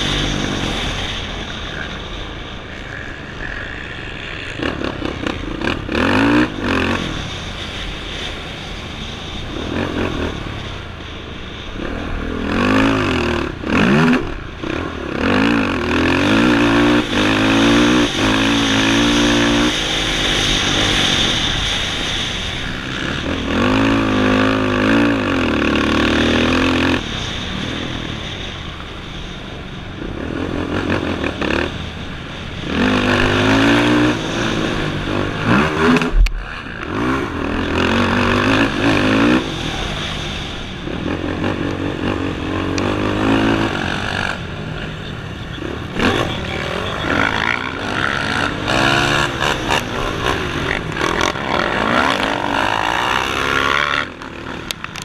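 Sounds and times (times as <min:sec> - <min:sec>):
racing engine revving: 0:11.8 - 0:28.4, 0:30.1 - 0:55.0.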